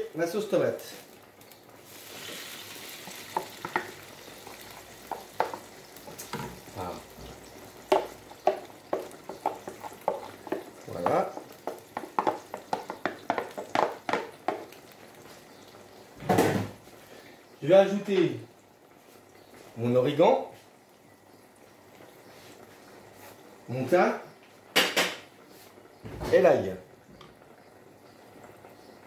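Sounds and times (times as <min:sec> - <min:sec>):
sauce sizzling in a hot pan: 0:00.0 - 0:23.8
wooden spatula scraping and knocking: 0:02.2 - 0:06.8, 0:07.7 - 0:14.8.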